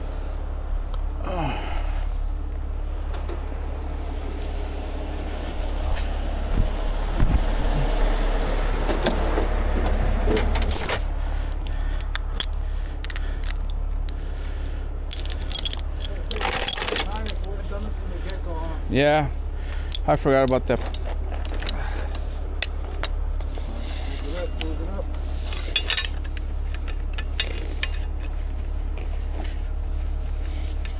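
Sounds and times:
heavy diesel engine running: 0.0s - 30.9s
sharp metallic clinks: 15.0s - 28.4s.

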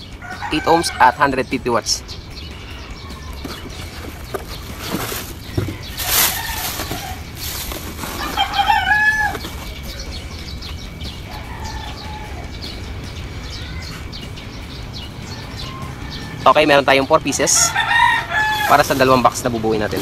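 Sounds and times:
rooster crowing: 0.2s - 1.3s, 5.9s - 7.3s, 8.2s - 9.5s, 11.2s - 12.9s, 15.2s - 16.8s, 17.6s - 19.0s
cardboard and plastic rustling: 3.3s - 9.9s.

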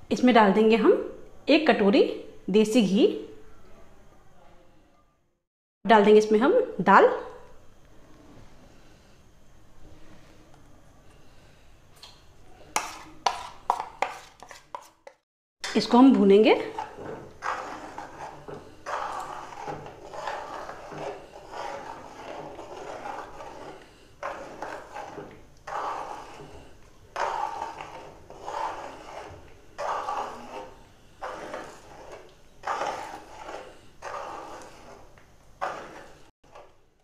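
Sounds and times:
metal spoon scraping a pan: 12.7s - 36.7s.

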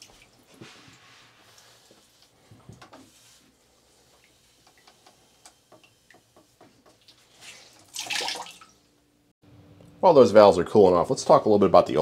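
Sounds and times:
cooling metal ticking and dripping: 4.1s - 7.2s.

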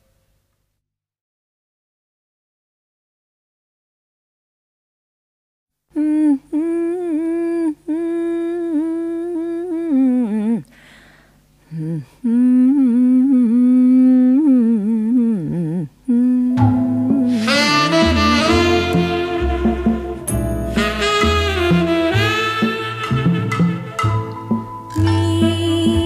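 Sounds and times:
woman humming: 5.9s - 10.8s, 11.6s - 23.0s, 24.9s - 26.0s
band with saxophone: 17.0s - 26.0s.

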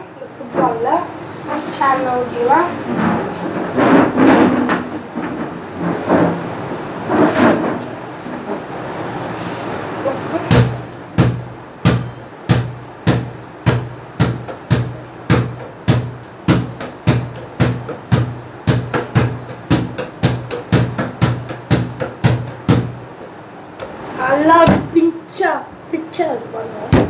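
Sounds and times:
football bouncing on hard floor: 10.5s - 23.0s.

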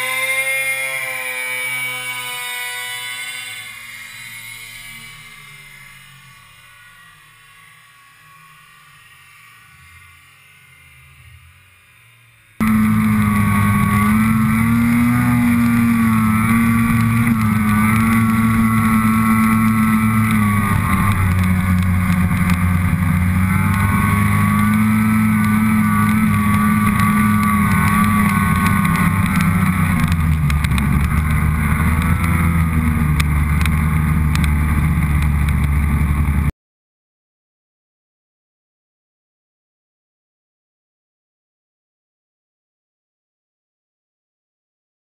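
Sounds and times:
snowmobile engine running: 0.0s - 11.8s, 12.6s - 36.5s.

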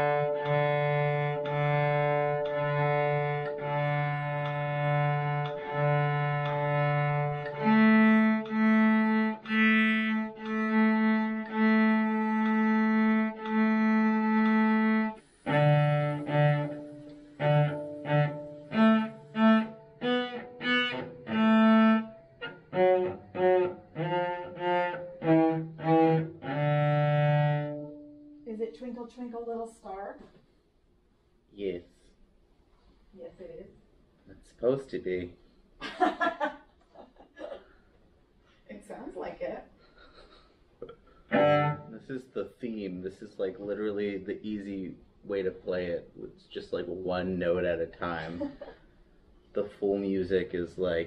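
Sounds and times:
cello bowed notes: 0.0s - 29.6s, 40.8s - 48.5s.

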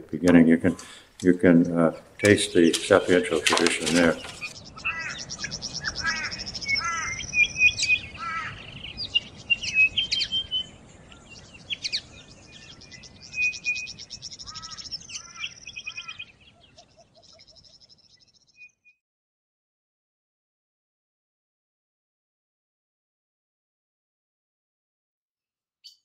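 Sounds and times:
birds chirping and trilling: 0.0s - 18.9s.

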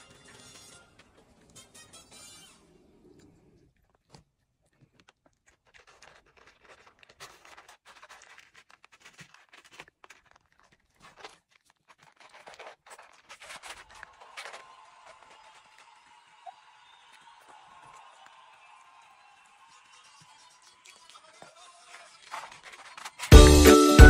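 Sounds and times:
puppy crunching dry kibble: 3.7s - 18.4s, 20.1s - 23.5s.

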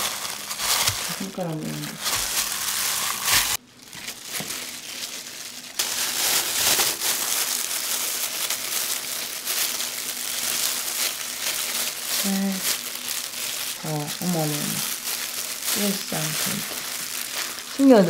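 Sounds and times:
plastic gloves crinkling: 0.0s - 18.0s.

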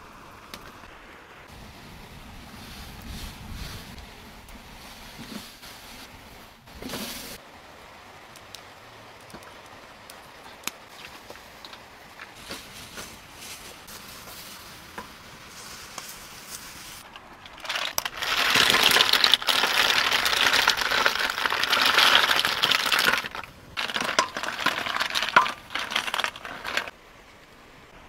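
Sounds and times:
snail shells clattering: 17.0s - 26.9s.

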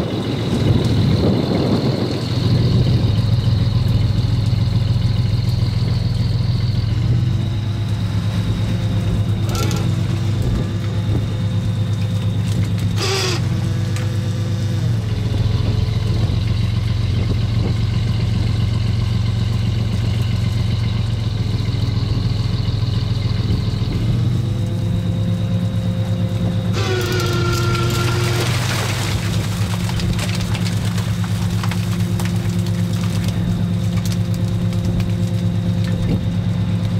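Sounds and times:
boat engine running: 0.0s - 36.9s
net hauler whine: 0.0s - 36.9s
short clatter: 9.2s - 10.9s, 26.7s - 36.2s.

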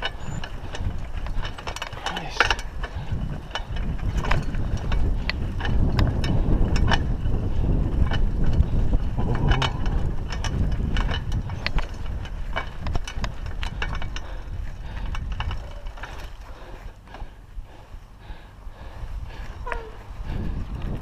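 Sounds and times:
tyres rumbling over loose rock: 0.0s - 14.2s
bike rattling: 0.0s - 21.0s
wind buffeting microphone: 0.0s - 21.0s.

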